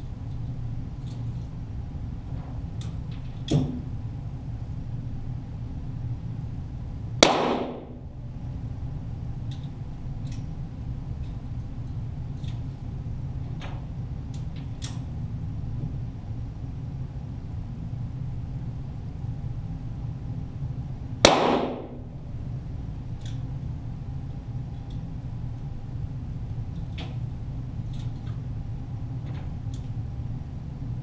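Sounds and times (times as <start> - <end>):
steady low hum: 0.0 - 31.0
pistol shots: 7.2 - 8.0, 21.2 - 22.0.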